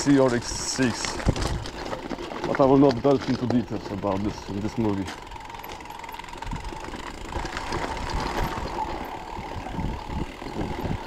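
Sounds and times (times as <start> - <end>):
bike motor whining: 0.0 - 11.0
tyre rumble: 5.1 - 11.0.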